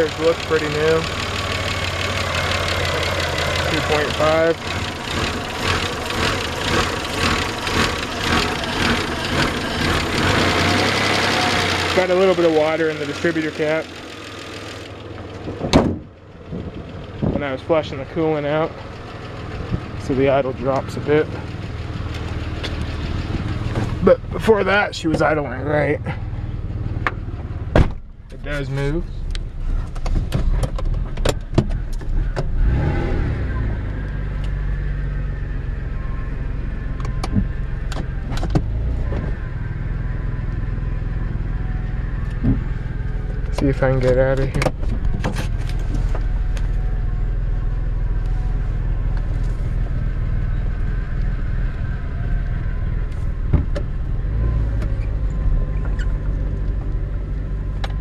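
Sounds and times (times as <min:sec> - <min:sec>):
car engine idling roughly: 0:00.0 - 0:30.3, 0:35.1 - 0:55.0
sharp clicks and knocks: 0:29.3 - 0:32.5, 0:43.4 - 0:46.7.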